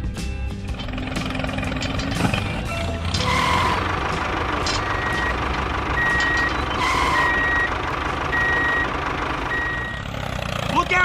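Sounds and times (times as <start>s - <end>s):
toy tractor motor whirring: 0.7s - 7.7s
reversing alarm beeping: 3.2s - 4.0s, 4.6s - 10.0s.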